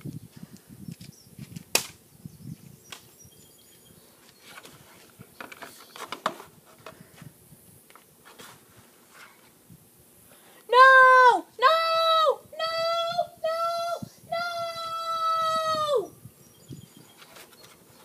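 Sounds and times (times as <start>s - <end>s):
rustling: 4.0s - 7.3s, 7.9s - 9.6s, 17.0s - 18.0s.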